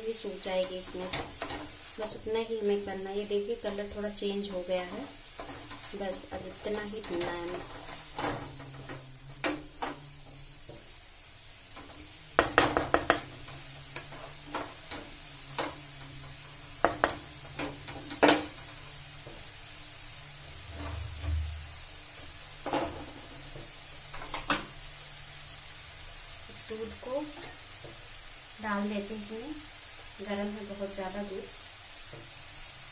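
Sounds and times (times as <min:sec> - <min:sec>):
carrots sizzling in a pan: 0:00.0 - 0:32.9
wooden spatula scraping a pan: 0:03.7 - 0:11.0, 0:20.5 - 0:23.8.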